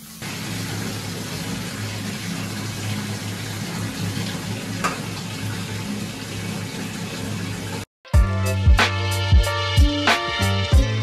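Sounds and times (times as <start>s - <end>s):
water pouring into bathtub: 0.0s - 7.9s.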